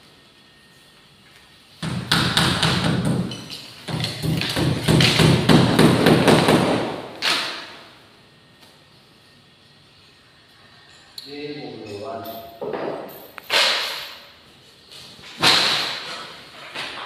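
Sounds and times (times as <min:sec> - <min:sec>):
ceiling boards knocking and clattering: 0:01.8 - 0:07.7, 0:15.2 - 0:17.0.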